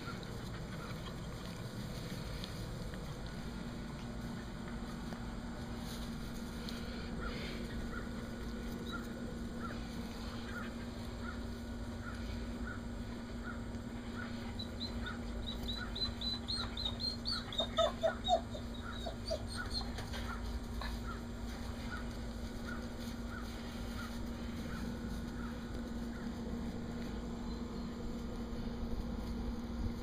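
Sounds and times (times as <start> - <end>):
steady low hum: 0.0 - 30.0
birds chirping: 6.7 - 28.8.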